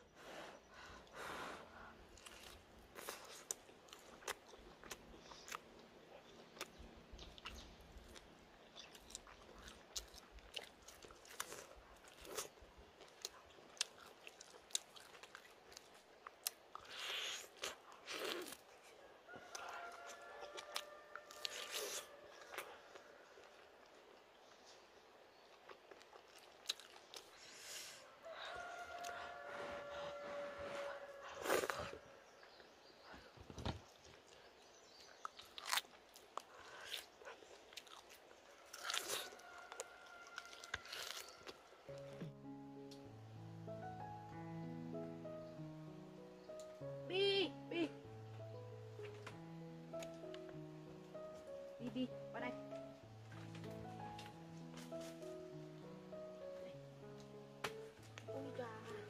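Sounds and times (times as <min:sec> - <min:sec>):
person eating with crunches: 0:02.0 - 0:30.0, 0:31.2 - 0:32.8, 0:33.8 - 0:42.2
person chewing and biting: 0:02.2 - 0:18.7, 0:19.5 - 0:22.8, 0:25.6 - 0:27.7, 0:35.1 - 0:42.0.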